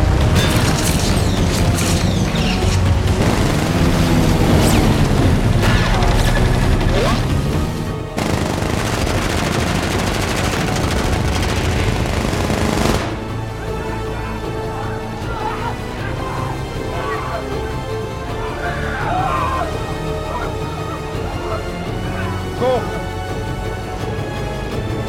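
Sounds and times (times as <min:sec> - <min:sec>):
film score music: 0:00.0 - 0:25.0
machine guns firing: 0:00.4 - 0:07.3, 0:08.2 - 0:13.4.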